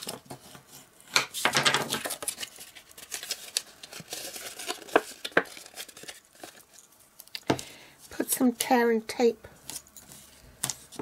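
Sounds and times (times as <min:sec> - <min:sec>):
card rustling and crackling: 0:00.0 - 0:07.4.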